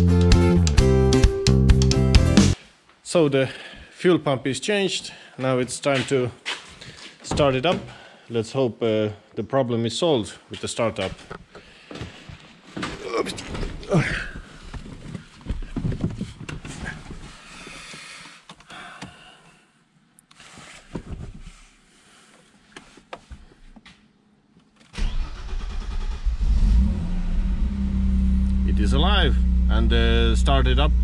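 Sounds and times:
car engine cranking and idling: 25.0s - 31.0s.

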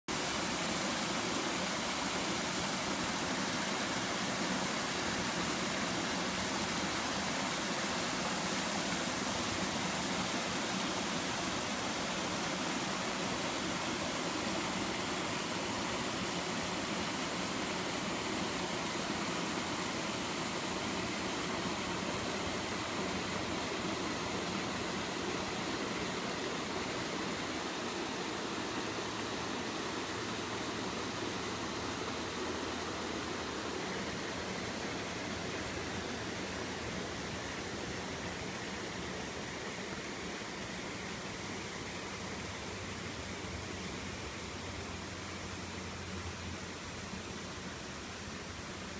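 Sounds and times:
water rushing over spillway: 0.1s - 48.9s.

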